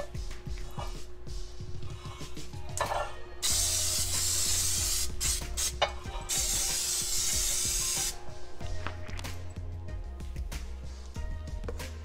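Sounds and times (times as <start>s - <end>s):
aerosol spray hissing: 3.4s - 8.3s.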